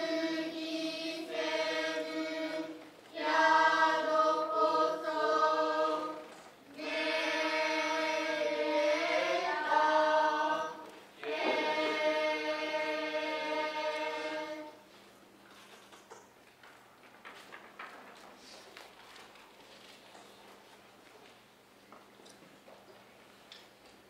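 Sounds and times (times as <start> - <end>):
chorus of young voices chanting: 0.0 - 6.2, 6.8 - 14.8.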